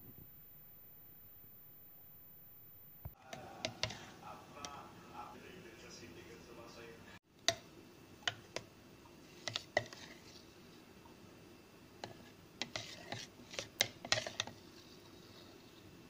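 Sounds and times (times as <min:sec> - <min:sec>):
metal spoon scraping plastic jug: 0:09.3 - 0:10.4, 0:12.0 - 0:15.9.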